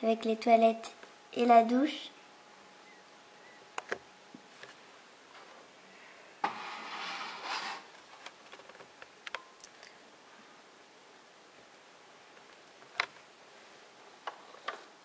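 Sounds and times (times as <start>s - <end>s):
plastic toy rubbing rustle: 6.5s - 8.0s.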